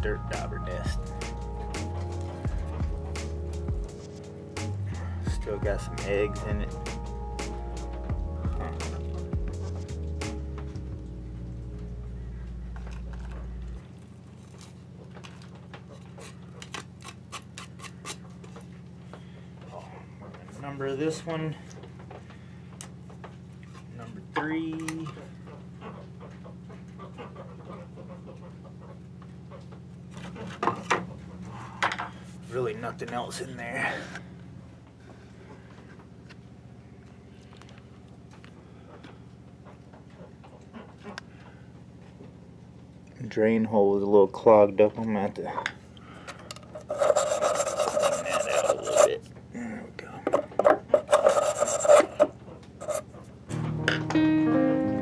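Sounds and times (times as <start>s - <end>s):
steady low hum: 0.0s - 54.0s
marker scratching on wood: 46.8s - 49.2s, 50.9s - 53.2s.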